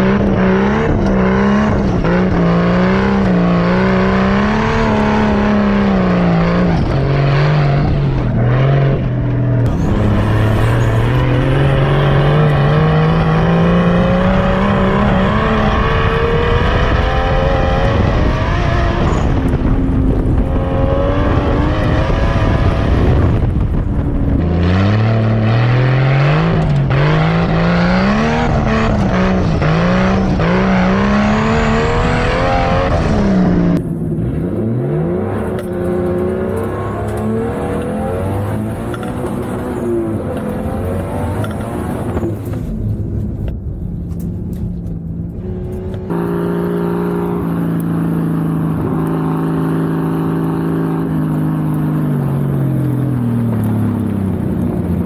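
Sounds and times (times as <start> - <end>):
car engine revving hard: 0.0 - 33.8, 34.4 - 42.3
steady rushing noise: 4.4 - 24.7.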